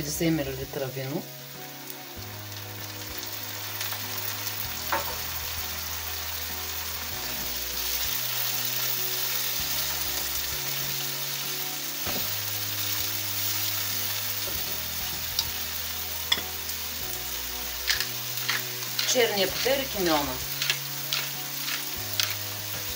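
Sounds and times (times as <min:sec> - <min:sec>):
onions sizzling in frying pan: 0:00.0 - 0:22.9
spatula stirring: 0:17.9 - 0:22.9.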